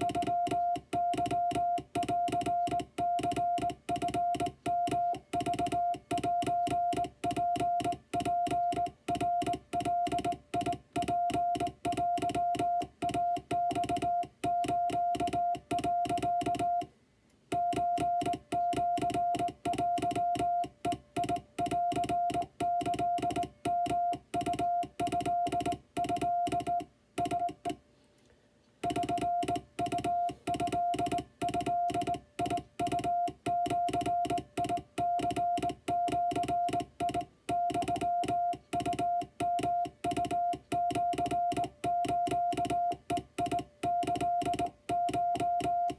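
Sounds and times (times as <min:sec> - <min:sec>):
morse code beeps: 0:00.0 - 0:16.9, 0:17.5 - 0:27.8, 0:28.8 - 0:45.9
telegraph key clicks: 0:28.8 - 0:45.9.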